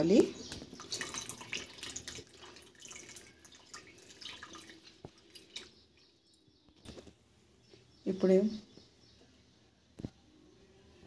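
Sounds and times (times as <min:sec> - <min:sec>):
liquid pouring through strainer: 0:00.6 - 0:05.9.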